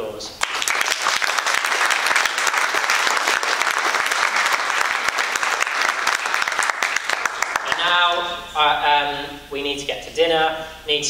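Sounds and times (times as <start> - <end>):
audience applauding: 0.4 - 8.2.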